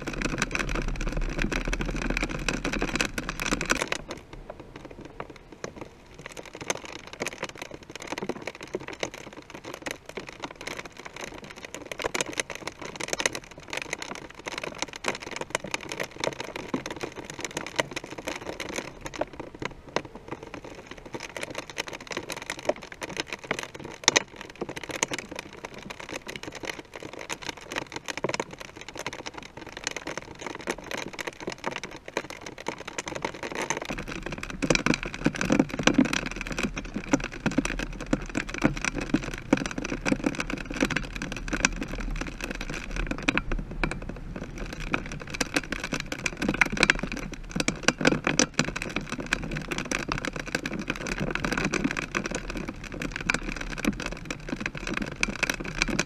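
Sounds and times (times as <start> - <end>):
rushing rumble: 0.0 - 6.2
wind noise: 0.0 - 8.0
raindrops pattering on camera housing: 0.0 - 56.0.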